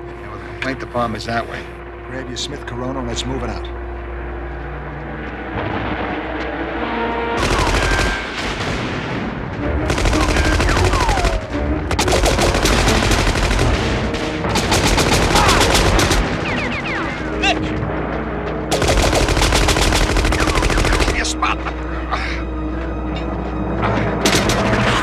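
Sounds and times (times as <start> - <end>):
automatic gunfire bursts: 9.9 - 11.3, 11.9 - 16.7, 18.7 - 21.2.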